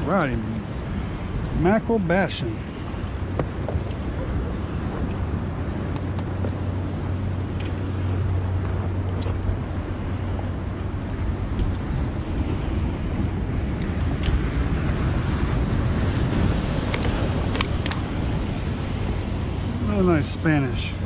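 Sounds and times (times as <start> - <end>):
water slapping around boat: 0.0 - 21.0
wind buffeting microphone: 0.0 - 21.0
faint light clicks: 5.9 - 6.3.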